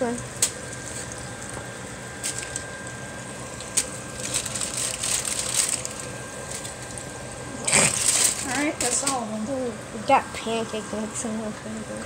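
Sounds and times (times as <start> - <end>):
frying oil crackling and sizzling: 0.0 - 9.4.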